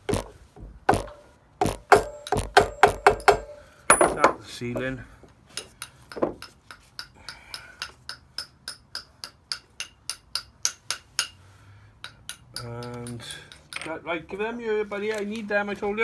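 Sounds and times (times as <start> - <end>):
hammer tapping metal: 0.9 - 4.9, 5.5 - 11.4, 12.0 - 13.9.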